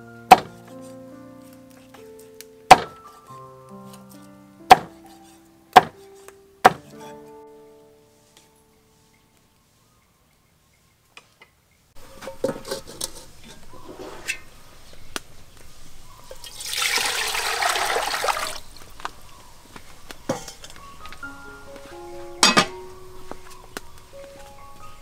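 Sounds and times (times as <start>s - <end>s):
water pouring into metal pot: 16.4s - 18.6s.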